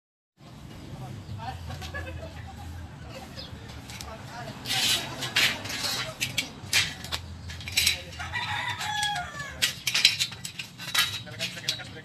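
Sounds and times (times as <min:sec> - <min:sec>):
rooster crowing: 0:08.2 - 0:09.6.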